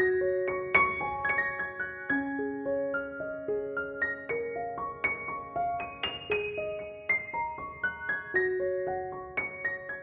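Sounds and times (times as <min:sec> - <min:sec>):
slow piano melody: 0:00.0 - 0:10.0.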